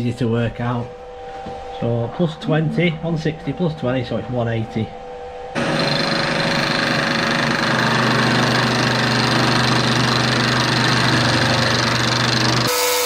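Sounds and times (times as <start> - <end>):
milling machine motor hum: 5.6 - 13.0
grinding hiss of metal cutting: 12.0 - 13.0.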